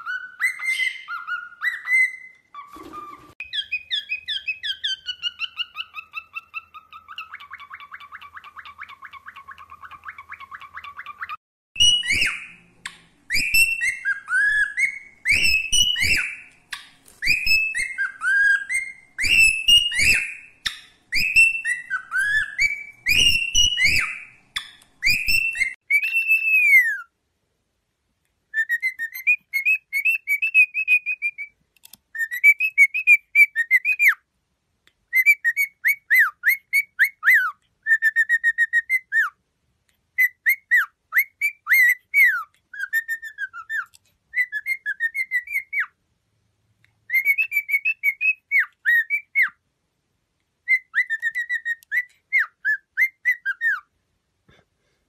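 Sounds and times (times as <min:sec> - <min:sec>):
cockatiel whistling: 0:00.0 - 0:12.6, 0:13.3 - 0:16.6, 0:17.2 - 0:27.1, 0:28.5 - 0:34.2, 0:35.1 - 0:39.4, 0:40.1 - 0:46.0, 0:47.1 - 0:49.6, 0:50.6 - 0:53.9
cockatiel clicks: 0:31.8 - 0:32.0.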